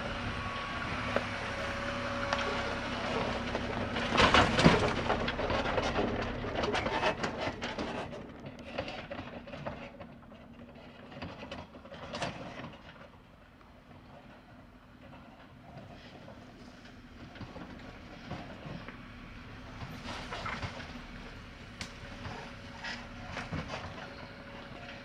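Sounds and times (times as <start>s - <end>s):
car engine humming: 0.0s - 7.2s
vehicle and trailer rattling: 0.0s - 25.0s.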